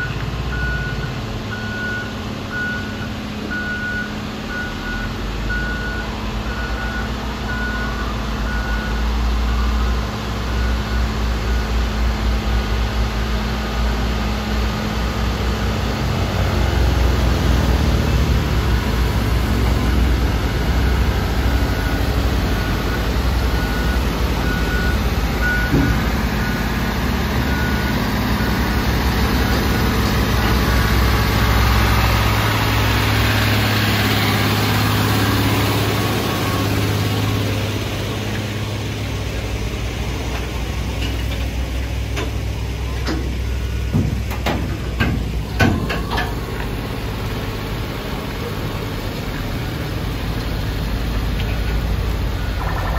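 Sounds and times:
reversing alarm beeping: 0:00.0 - 0:11.8, 0:17.9 - 0:39.1
diesel engine running low: 0:00.0 - 0:52.9.

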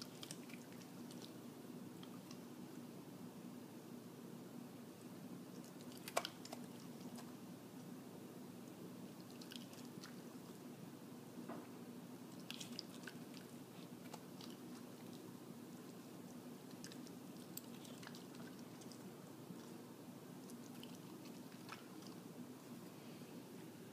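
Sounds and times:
dog chewing: 0:00.0 - 0:01.4, 0:05.5 - 0:07.4, 0:09.2 - 0:10.6, 0:12.3 - 0:22.8.

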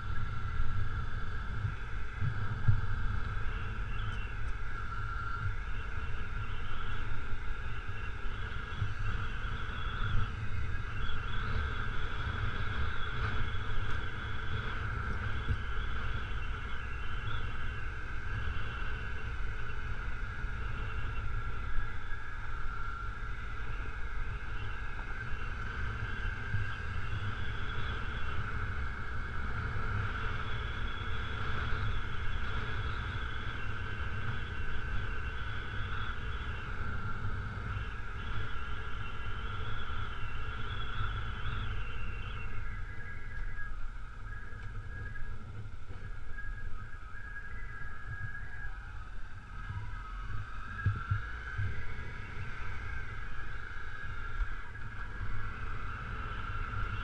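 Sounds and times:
wind and road noise: 0:00.0 - 0:57.0.

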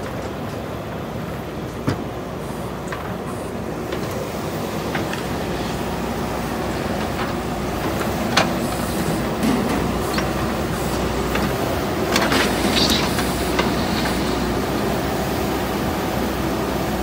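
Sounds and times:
diesel engine running: 0:01.3 - 0:17.0.

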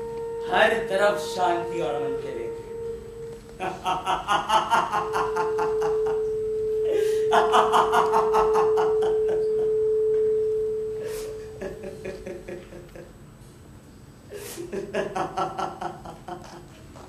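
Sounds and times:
pure electronic tone: 0:00.0 - 0:12.8
boy laughing loudly: 0:03.6 - 0:06.2, 0:06.9 - 0:09.4, 0:11.4 - 0:13.1, 0:14.3 - 0:17.0.

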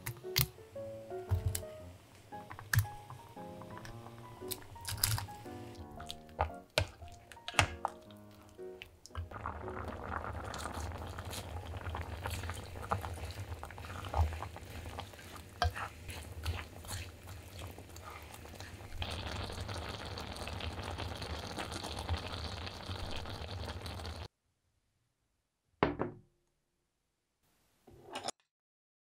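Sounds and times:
wooden spoon stirring and knocking: 0:02.5 - 0:08.5, 0:09.1 - 0:19.1
thick sauce bubbling in a pot: 0:09.1 - 0:24.3.

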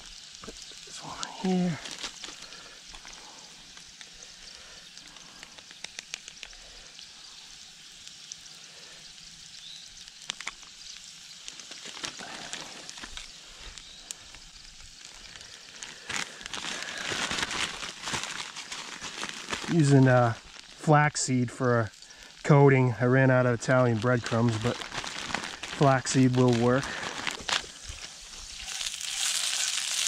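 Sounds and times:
potatoes sizzling in a pan: 0:00.0 - 0:30.0
plastic bag crinkling: 0:01.4 - 0:03.9, 0:11.4 - 0:20.8, 0:23.0 - 0:30.0.

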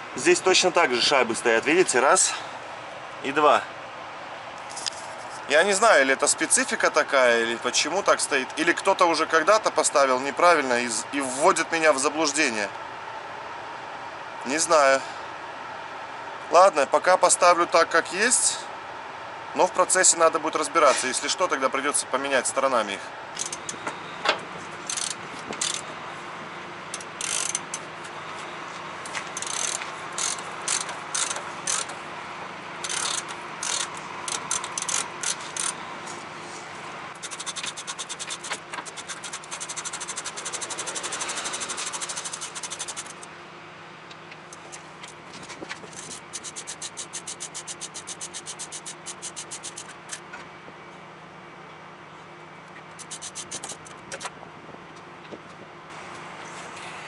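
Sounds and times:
ratchet wrench clicking: 0:23.4 - 0:23.7, 0:24.8 - 0:25.8, 0:26.9 - 0:27.8, 0:29.4 - 0:31.9, 0:32.8 - 0:35.8, 0:37.2 - 0:43.2, 0:45.9 - 0:50.2, 0:53.0 - 0:53.9.

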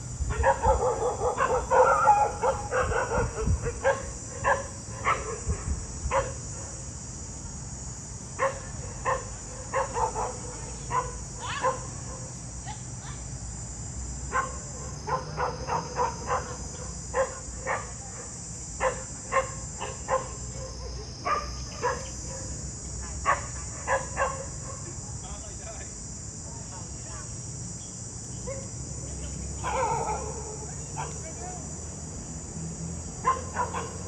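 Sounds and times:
high insect drone: 0:00.0 - 0:34.0
dog barking: 0:00.3 - 0:06.8, 0:08.4 - 0:12.3, 0:14.3 - 0:18.0, 0:18.8 - 0:22.6, 0:23.2 - 0:24.8, 0:28.5 - 0:28.7, 0:29.6 - 0:31.2, 0:33.2 - 0:34.0.

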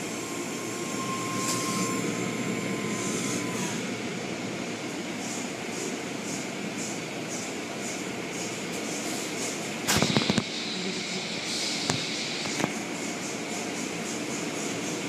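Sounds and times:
car wash water spray and machinery: 0:00.0 - 0:15.0
sharp clicks: 0:09.9 - 0:10.5.

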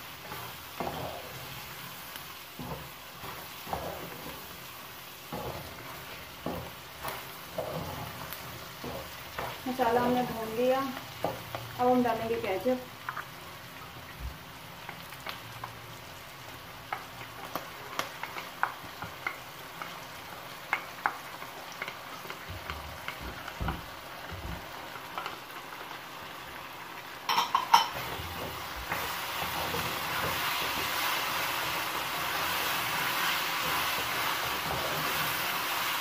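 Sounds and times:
food sizzling in a pan: 0:00.0 - 0:36.0
wooden spatula scraping a pan: 0:00.2 - 0:11.6, 0:27.9 - 0:35.9.

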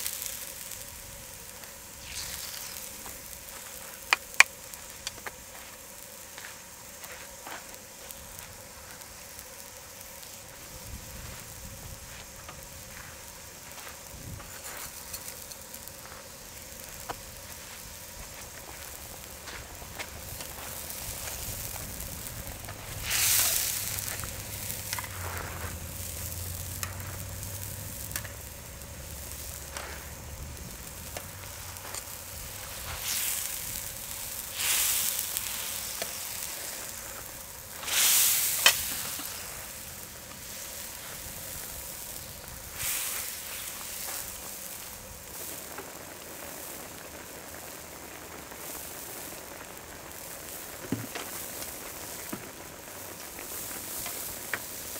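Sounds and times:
broth boiling and sizzling: 0:00.0 - 0:54.9
tongs stirring in a pan: 0:02.0 - 0:04.5, 0:34.4 - 0:41.2.

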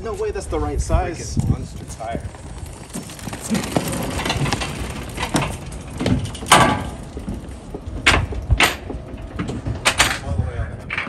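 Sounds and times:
motorcycle clunking on metal ramp: 0:03.8 - 0:10.2.

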